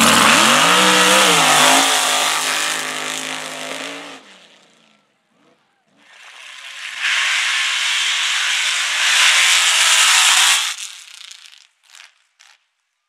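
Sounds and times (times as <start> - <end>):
spinning tyres throwing dirt: 0.0 - 3.7, 6.1 - 12.7
truck engine roaring: 0.0 - 5.0, 6.0 - 11.4.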